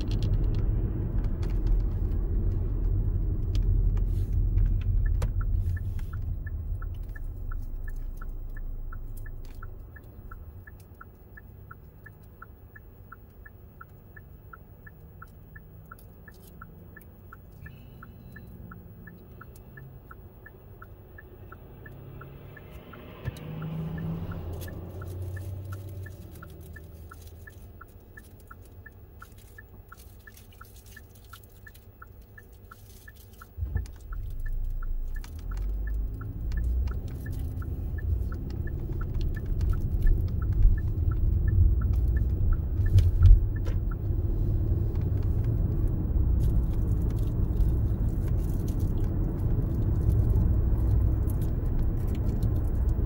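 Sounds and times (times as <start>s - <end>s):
car engine idling: 0.0s - 53.0s
turn signal ticking: 0.0s - 53.0s
tyre and road noise: 0.0s - 53.0s
vehicle passing: 17.7s - 27.6s, 33.6s - 53.0s.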